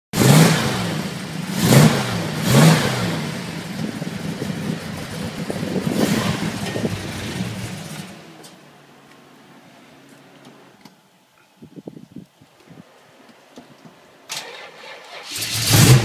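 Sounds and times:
car engine revving and idling: 0.2s - 8.9s, 15.2s - 16.0s.

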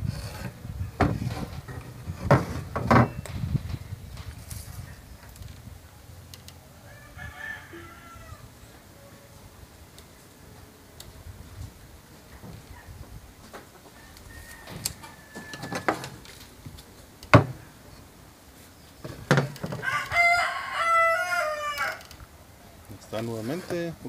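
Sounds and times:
wood and tools knocking: 0.3s - 3.8s, 14.7s - 17.6s, 19.0s - 20.2s
rooster crowing: 6.7s - 9.4s, 13.9s - 16.2s, 19.8s - 22.2s.

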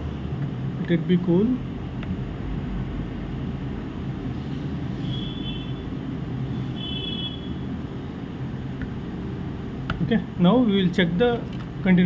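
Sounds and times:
fan whirring: 0.0s - 12.0s.

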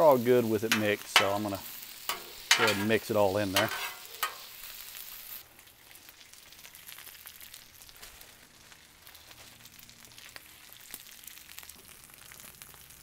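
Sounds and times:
food sizzling on a griddle: 0.0s - 13.0s
metal spatula stirring: 0.7s - 4.5s.

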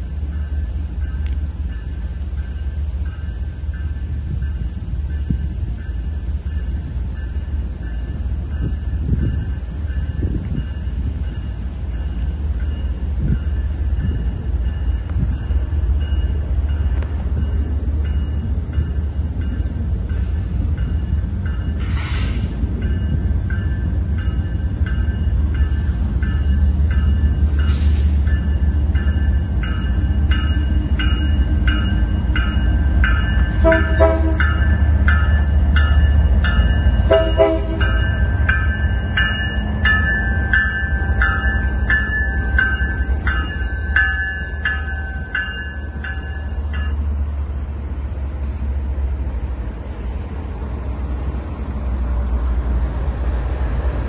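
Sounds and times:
locomotive engines rumbling: 0.0s - 54.0s
train horn blasts: 33.5s - 34.8s, 37.0s - 38.0s.

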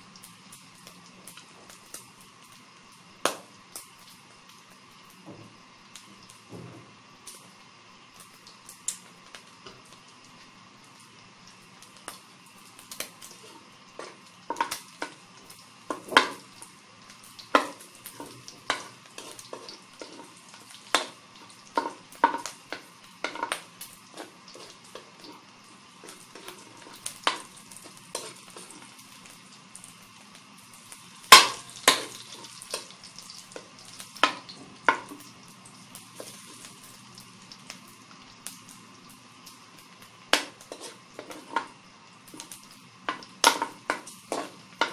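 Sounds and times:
meat frying with faint sizzle: 0.0s - 44.9s
metal spatula scraping wok: 40.4s - 41.7s.

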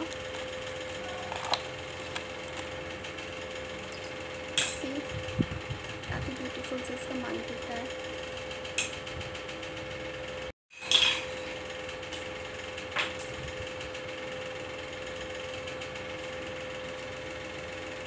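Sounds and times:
steady hum: 0.0s - 9.4s.

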